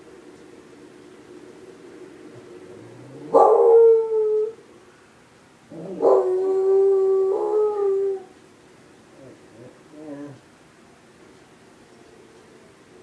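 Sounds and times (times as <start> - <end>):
dog howling: 2.8 - 4.6, 5.7 - 8.3.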